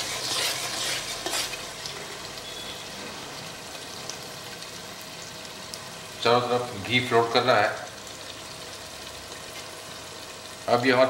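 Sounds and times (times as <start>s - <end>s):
spatula scraping pot: 0.0s - 1.6s
frying sizzle with pops: 0.0s - 11.0s.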